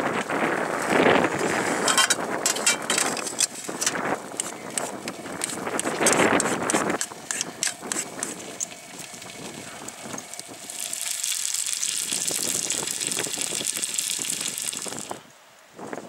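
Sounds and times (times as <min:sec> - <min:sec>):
utensil scraping in metal pot: 0:01.7 - 0:04.0
food sizzling in a frying pan: 0:08.0 - 0:15.2.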